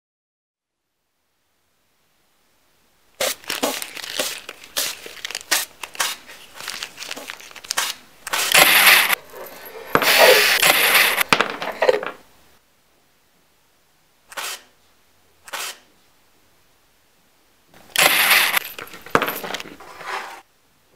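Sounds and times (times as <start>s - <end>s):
scraping strokes on wood: 7.8s - 11.2s, 14.3s - 14.7s, 15.5s - 15.9s, 19.7s - 20.5s.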